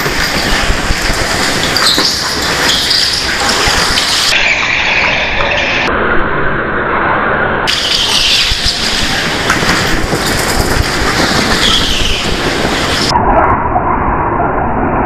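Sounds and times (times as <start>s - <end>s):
go-kart motor rumbling: 0.0s - 4.4s, 7.7s - 13.1s.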